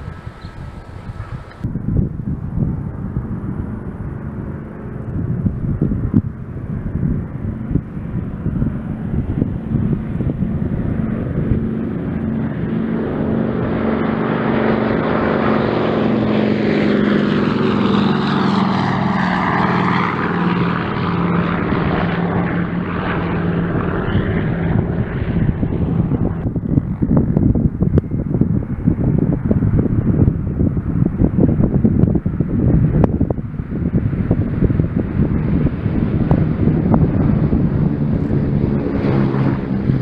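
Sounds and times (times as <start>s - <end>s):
propeller plane engine drone: 0.0s - 40.0s
wind buffeting microphone: 0.0s - 40.0s.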